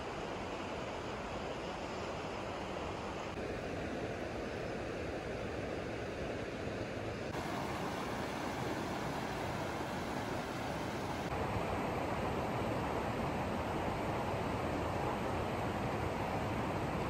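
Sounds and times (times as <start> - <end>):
creek flowing over stones: 7.3 - 11.3.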